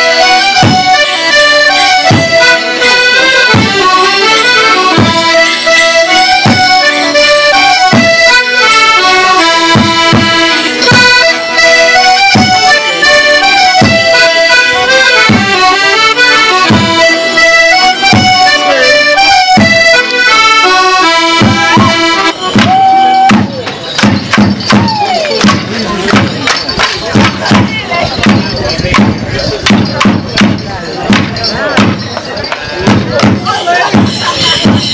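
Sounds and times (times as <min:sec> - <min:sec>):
accordions playing folk tune: 0:00.0 - 0:24.8, 0:25.4 - 0:34.9
bass drum beating: 0:16.6 - 0:17.0, 0:21.3 - 0:34.9.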